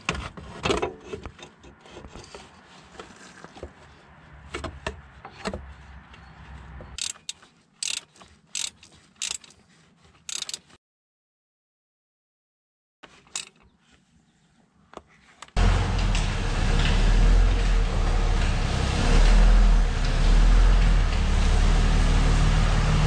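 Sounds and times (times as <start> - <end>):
metal clicking: 7.0 - 9.6, 10.2 - 10.8, 13.3 - 13.6.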